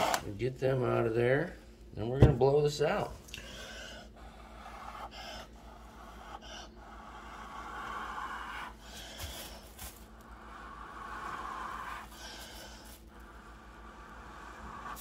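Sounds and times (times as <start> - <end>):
person blowing airy breaths: 3.3 - 15.0.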